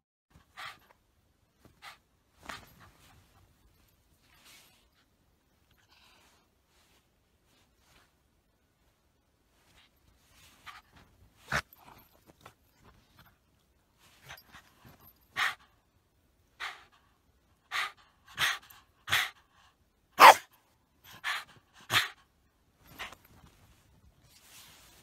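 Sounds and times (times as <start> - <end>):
dog barking: 20.2 - 20.5.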